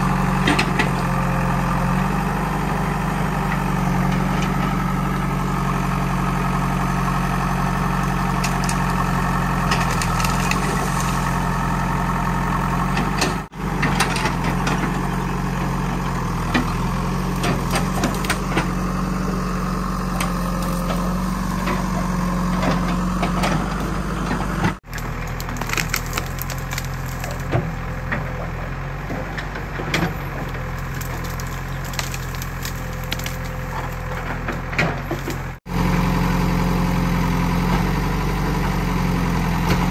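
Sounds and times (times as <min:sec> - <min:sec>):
diesel engine running: 0:00.0 - 0:39.9
branches cracking and snapping: 0:07.8 - 0:13.2, 0:16.1 - 0:19.2, 0:19.9 - 0:23.6, 0:24.8 - 0:28.5, 0:30.0 - 0:35.6.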